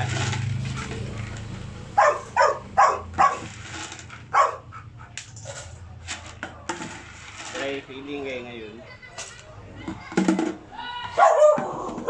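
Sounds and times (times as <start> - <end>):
spoon scraping plastic tub: 0.0 - 1.7, 2.3 - 8.6
dog barking: 2.0 - 3.5, 4.3 - 4.7, 11.2 - 11.9.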